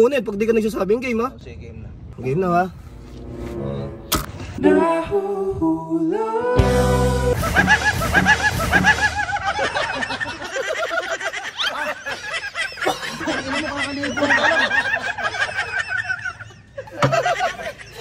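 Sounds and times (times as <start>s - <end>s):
men laughing: 7.2s - 18.0s.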